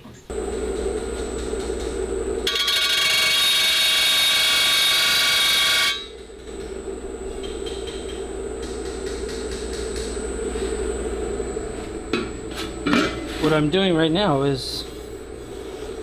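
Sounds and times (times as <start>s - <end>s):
bench grinder hum and whine: 0.0s - 16.0s
metal rim grinding with ringing: 2.4s - 6.2s.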